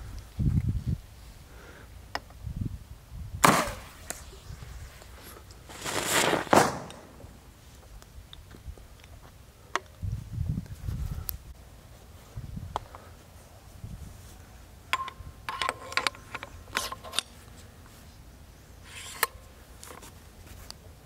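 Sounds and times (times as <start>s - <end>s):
launcher firing bang: 3.4s - 4.1s, 6.5s - 7.4s.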